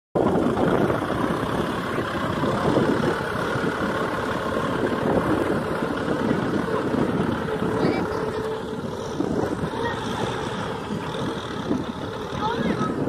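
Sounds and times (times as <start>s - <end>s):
tractor engine running: 0.2s - 13.0s.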